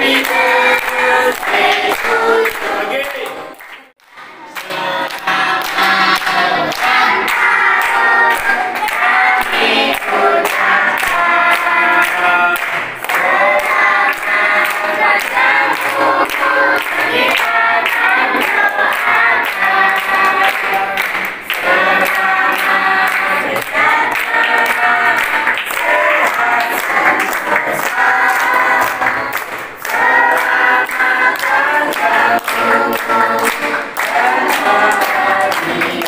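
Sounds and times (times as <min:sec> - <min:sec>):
group singing birthday song: 0:00.0 - 0:36.0
people clapping along: 0:00.0 - 0:36.0.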